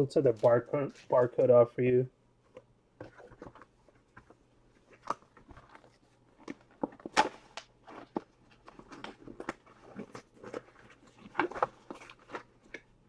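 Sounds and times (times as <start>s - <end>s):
cards and packaging handled: 2.5s - 13.0s.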